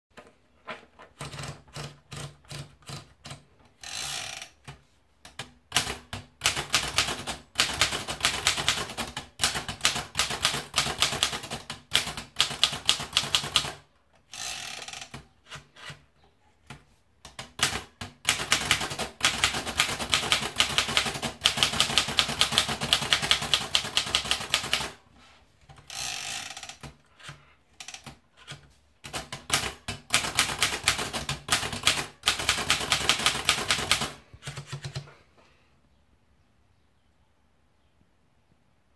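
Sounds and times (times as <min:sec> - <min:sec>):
typewriter carriage ratcheting: 0:01.1 - 0:04.7.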